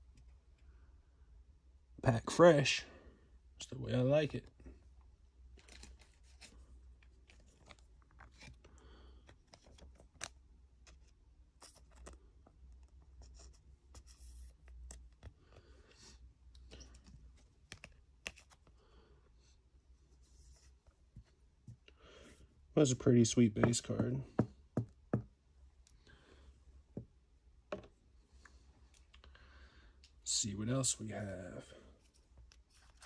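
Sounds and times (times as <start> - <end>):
hands handling plastic card holder: 5.6 - 13.0, 16.9 - 18.7.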